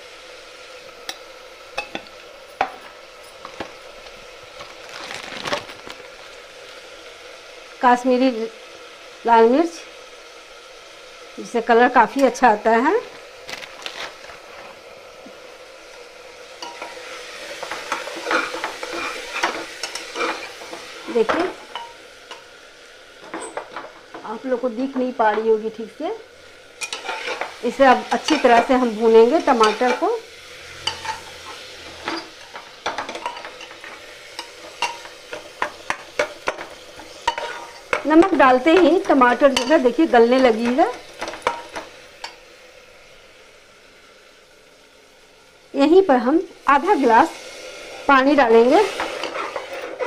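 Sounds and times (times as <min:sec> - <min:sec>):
food sizzling in a pot: 0:00.0 - 0:50.0
metal spatula scraping pot: 0:17.6 - 0:21.9, 0:26.8 - 0:41.6, 0:48.7 - 0:50.0.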